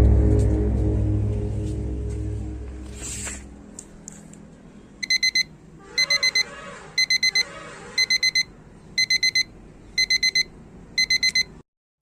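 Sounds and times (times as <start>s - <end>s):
quick high electronic beeps: 5.0s - 9.4s.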